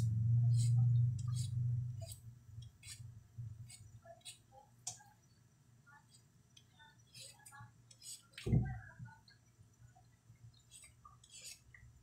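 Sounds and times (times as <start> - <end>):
low hum: 0.0 - 2.7.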